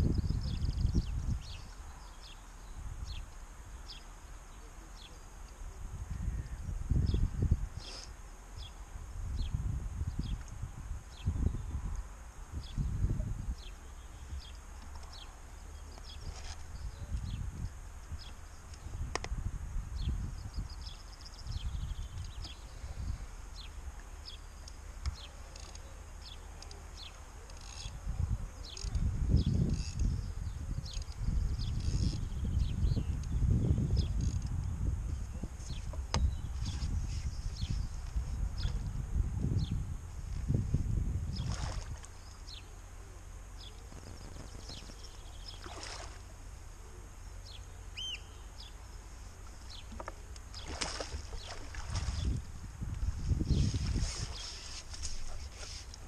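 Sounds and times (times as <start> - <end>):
wind buffeting microphone: 0.0 - 1.7, 5.8 - 7.8, 9.0 - 14.5, 16.1 - 23.7, 27.8 - 42.6, 50.6 - 55.5
small birds chirping: 12.6 - 19.2, 20.0 - 38.9, 41.3 - 52.4
bird chirps: 47.4 - 48.8.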